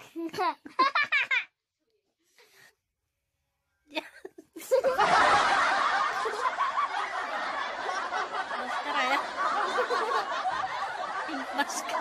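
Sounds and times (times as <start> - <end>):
people laughing: 0.7 - 1.5, 4.2 - 12.0.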